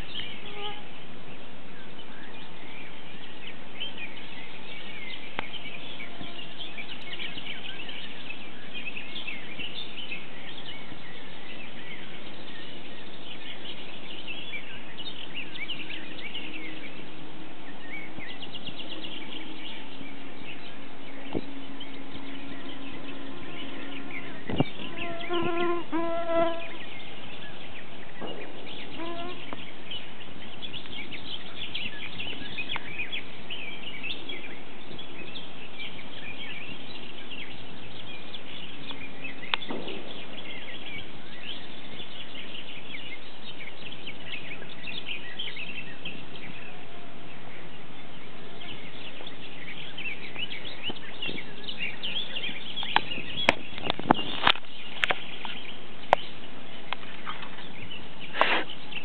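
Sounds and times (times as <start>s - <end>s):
birds chirping and singing: 0.0s - 59.0s
steady outdoor hiss: 0.0s - 59.0s
short pitched bird call: 22.6s - 27.1s, 28.2s - 30.1s.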